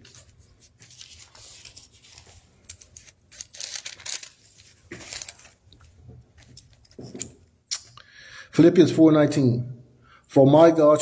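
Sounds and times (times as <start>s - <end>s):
soft rustling and handling: 0.0s - 7.5s.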